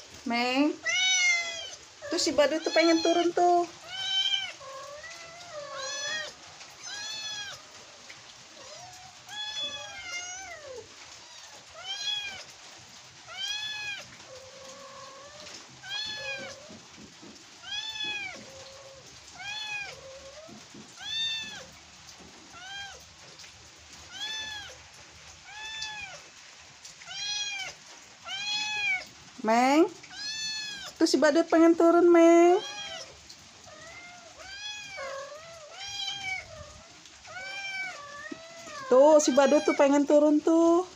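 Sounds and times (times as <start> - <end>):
kitten meowing: 0.8 - 7.7, 8.6 - 12.4, 13.3 - 16.7, 17.6 - 21.7, 24.1 - 24.8, 30.1 - 31.0, 32.6 - 39.9.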